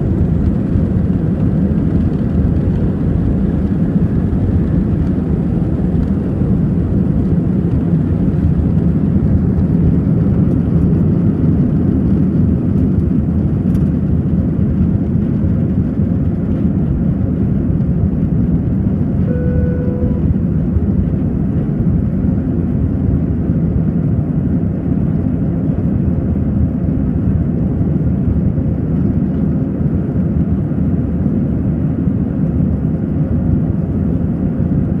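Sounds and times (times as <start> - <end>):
jet engines rumbling: 0.0 - 35.0
short tone: 19.2 - 20.5.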